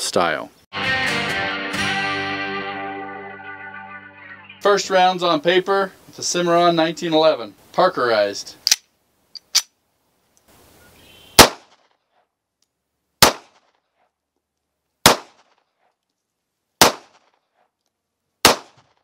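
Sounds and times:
pistol shots: 11.4 - 11.8, 13.2 - 13.6, 15.0 - 15.5, 16.8 - 17.3, 18.4 - 18.9.

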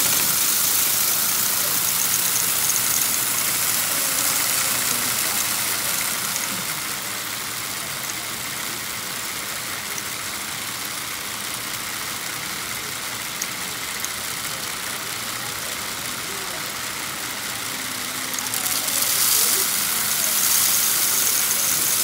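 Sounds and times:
small clicks: 0.0 - 7.0, 18.4 - 22.0
toy motors and gears whirring: 0.0 - 22.0.

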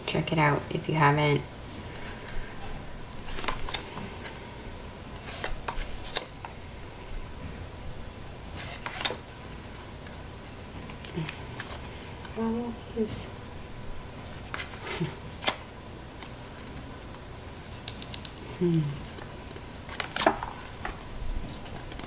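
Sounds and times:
cards swishing and flicking: 3.2 - 4.1.

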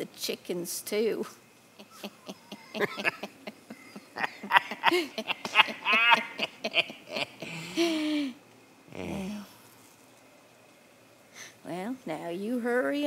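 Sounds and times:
man and woman laughing: 1.8 - 8.2.

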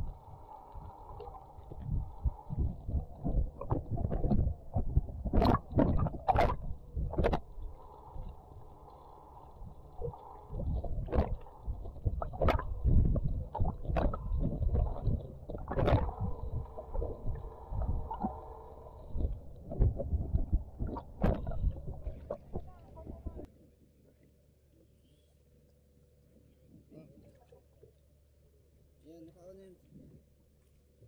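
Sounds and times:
water splashing: 0.0 - 23.5
muffled underwater sloshing: 0.0 - 29.0.

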